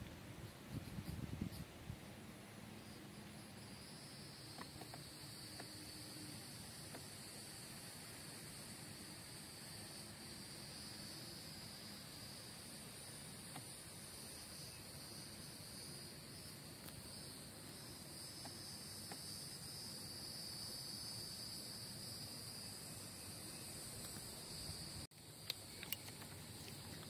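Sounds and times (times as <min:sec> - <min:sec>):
small clicks: 0:25.2 - 0:27.0.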